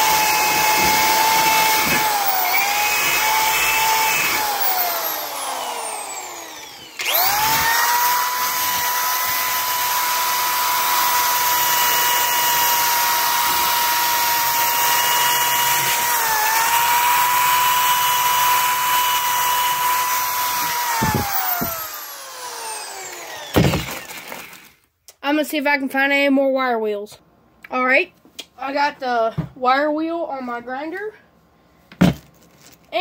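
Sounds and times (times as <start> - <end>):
electric drill wire wheel whining: 0.0 - 24.8.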